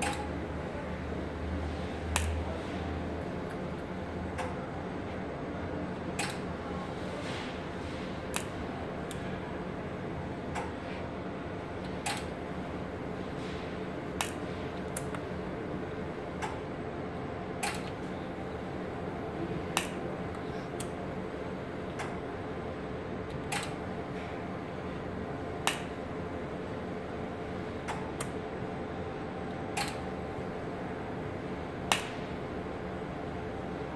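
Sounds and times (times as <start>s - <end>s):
welding machine sharp clicks: 0.0s - 0.3s, 2.1s - 2.4s, 6.2s - 6.5s, 8.3s - 9.2s, 11.9s - 12.4s, 14.2s - 15.2s, 17.6s - 18.0s, 19.7s - 20.0s, 23.3s - 23.8s, 25.6s - 26.0s, 29.7s - 30.1s, 31.9s - 32.3s
steady hum: 0.0s - 33.9s.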